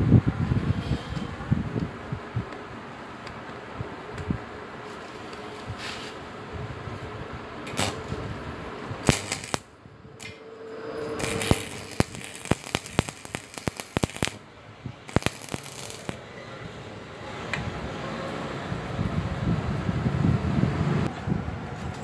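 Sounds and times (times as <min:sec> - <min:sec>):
welding arc crackling: 0:07.7 - 0:08.1, 0:09.0 - 0:10.4, 0:11.1 - 0:14.4, 0:15.0 - 0:16.2
spatter popping: 0:09.0 - 0:09.6, 0:11.2 - 0:14.4, 0:15.1 - 0:16.2.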